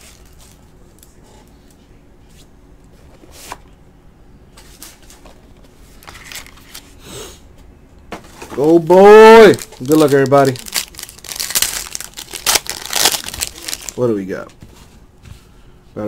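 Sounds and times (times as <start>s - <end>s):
foil pack crinkling: 6.0s - 6.8s, 8.6s - 14.3s.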